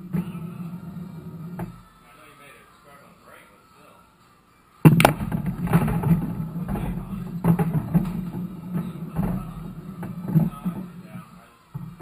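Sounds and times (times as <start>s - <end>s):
pool balls clicking: 0.0s - 1.9s, 4.9s - 12.0s
pool balls rolling: 0.0s - 1.9s, 4.9s - 12.0s.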